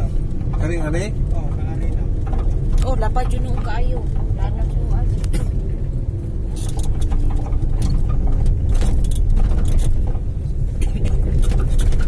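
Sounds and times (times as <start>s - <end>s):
engine and road rumble: 0.0s - 12.0s
clicks and rattles: 1.5s - 4.4s, 6.5s - 12.0s.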